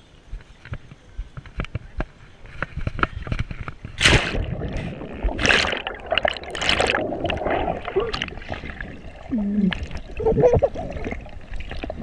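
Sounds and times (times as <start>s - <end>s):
underwater sloshing and bubbling: 3.2s - 12.0s
splash into pool: 4.0s - 9.1s.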